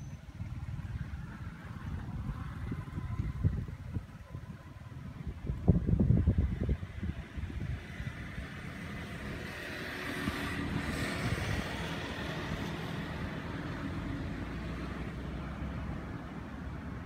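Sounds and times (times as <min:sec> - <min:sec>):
low traffic rumble: 0:00.0 - 0:17.0
vehicle passing by: 0:05.4 - 0:17.0.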